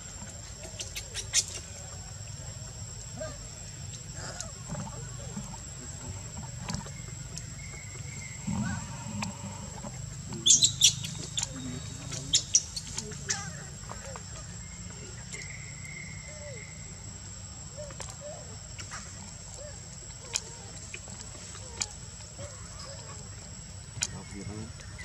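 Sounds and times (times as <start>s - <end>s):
baby monkey squeaking: 10.4s - 11.5s.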